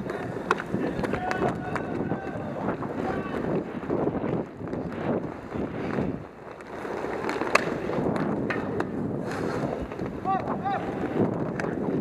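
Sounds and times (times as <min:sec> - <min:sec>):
skate wheels rolling and scraping: 0:00.0 - 0:12.0.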